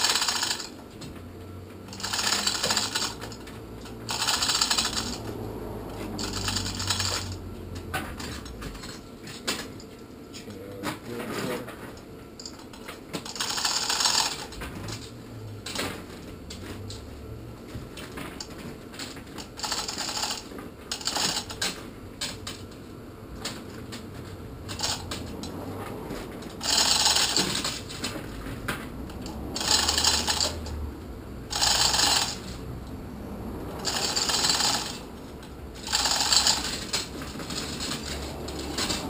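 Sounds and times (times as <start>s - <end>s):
metallic ratcheting bursts: 0.0s - 0.8s, 1.9s - 7.5s, 13.2s - 15.0s, 19.5s - 21.8s, 24.7s - 25.5s, 26.6s - 28.1s, 29.1s - 30.8s, 31.5s - 32.6s, 33.7s - 39.0s.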